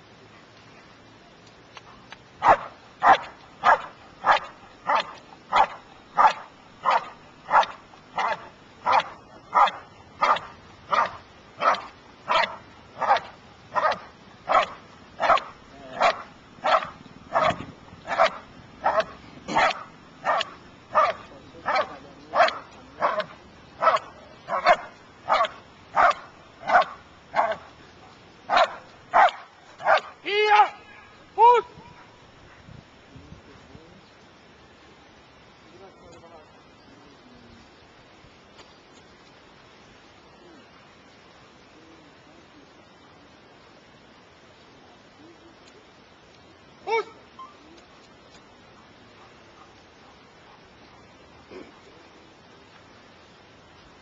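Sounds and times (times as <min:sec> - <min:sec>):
dog barking: 0:02.4 - 0:27.7, 0:28.5 - 0:30.2, 0:49.2 - 0:50.7.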